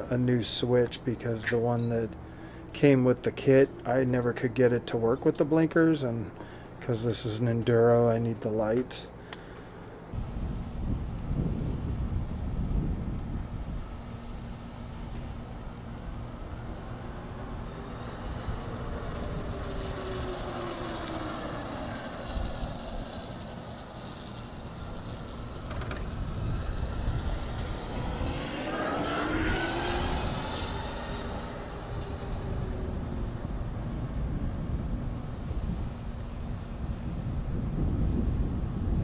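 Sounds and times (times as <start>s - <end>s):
low rumble: 10.1s - 39.0s
electric motorcycle motor whining: 10.2s - 34.5s.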